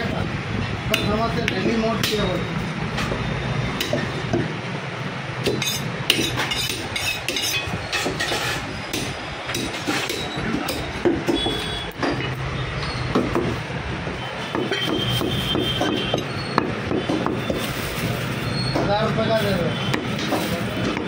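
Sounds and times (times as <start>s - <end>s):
cleaver chopping meat on wood: 9.0s - 12.4s, 14.5s - 17.6s, 19.9s - 21.0s.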